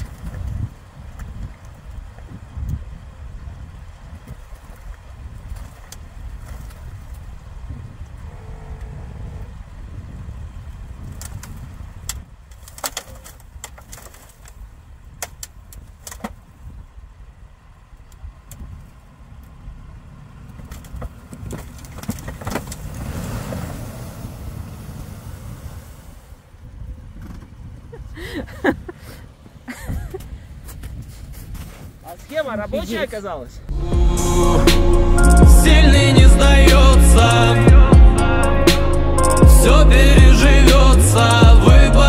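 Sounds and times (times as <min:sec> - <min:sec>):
engine running at low revs: 0:06.0 - 0:12.0, 0:16.8 - 0:27.0, 0:33.7 - 0:42.0
sharp cracks and knocks: 0:11.1 - 0:16.4, 0:20.5 - 0:23.0.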